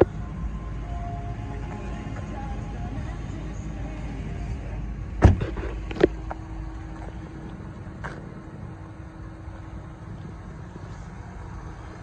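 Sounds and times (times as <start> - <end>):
car door shutting thud: 5.2 - 6.1.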